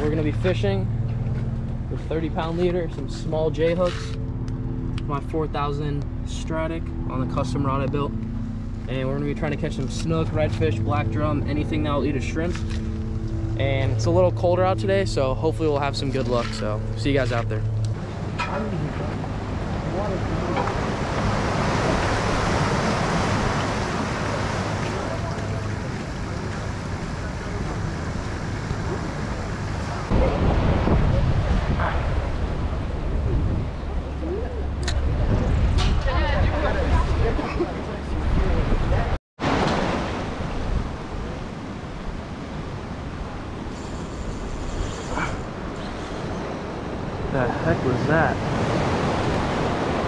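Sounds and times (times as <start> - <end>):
low steady hum: 0.0 - 39.1
surf on open water: 0.0 - 50.0
wind buffeting microphone: 17.7 - 39.2
wind rushing: 30.1 - 34.0.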